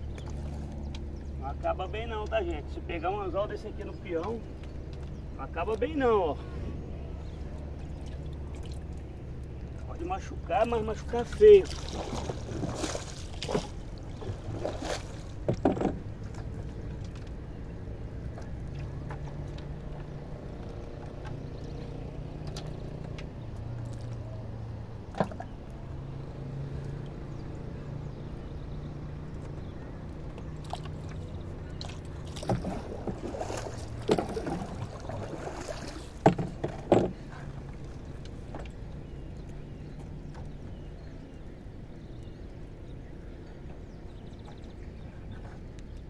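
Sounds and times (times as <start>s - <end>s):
fishing gear knocking in wooden boat: 15.4s - 16.5s, 32.4s - 35.0s, 36.2s - 37.2s.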